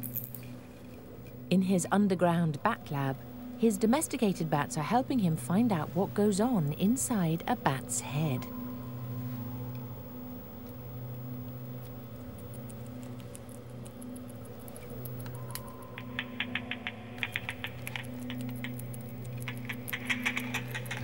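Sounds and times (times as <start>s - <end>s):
low electrical hum: 0.0s - 21.0s
bat echolocation clicks: 11.5s - 21.0s.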